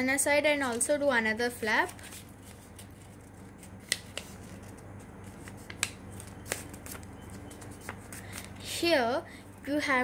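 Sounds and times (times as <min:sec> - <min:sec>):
faint steady hum: 0:00.0 - 0:10.0
paper crackling and snapping: 0:01.6 - 0:08.7.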